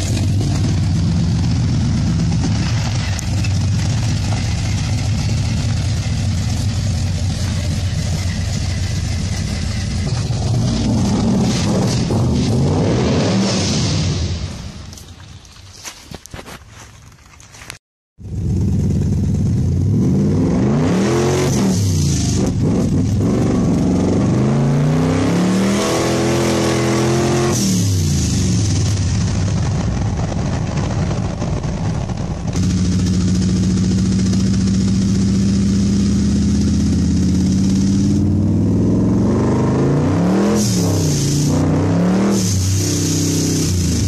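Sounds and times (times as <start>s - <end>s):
car engine revving and shifting: 6.6s - 14.2s, 18.9s - 28.6s, 32.6s - 44.0s.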